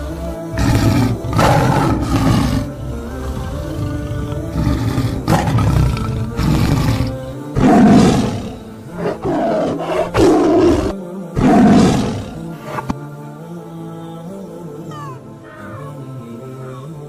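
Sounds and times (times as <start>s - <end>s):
tiger growling: 0.0s - 13.0s
background music: 0.0s - 17.0s
tiger roaring: 0.5s - 13.0s.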